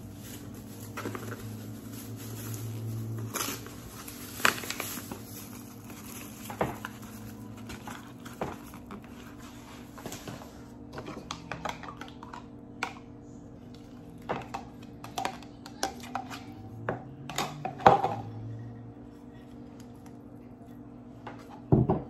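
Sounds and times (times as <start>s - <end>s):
bag rustling: 0.0s - 10.0s
cornmeal pattering into plastic bowl: 0.0s - 13.1s.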